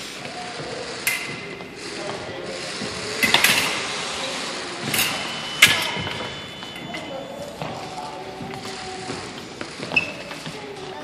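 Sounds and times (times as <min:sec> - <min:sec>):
fencing blades clashing: 0:00.8 - 0:04.0, 0:04.8 - 0:07.7.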